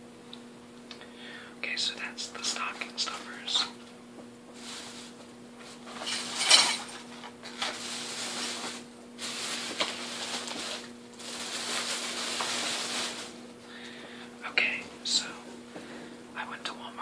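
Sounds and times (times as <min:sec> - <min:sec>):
rustling of items: 0:04.5 - 0:13.4.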